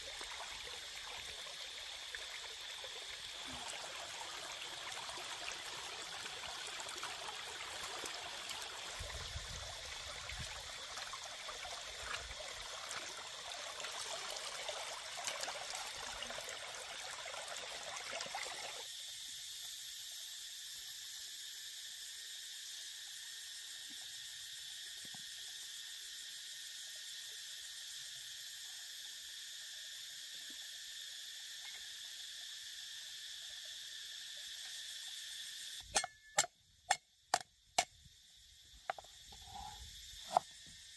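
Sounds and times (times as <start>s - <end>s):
water running and splashing: 0.0s - 18.8s
insects droning: 0.0s - 40.9s.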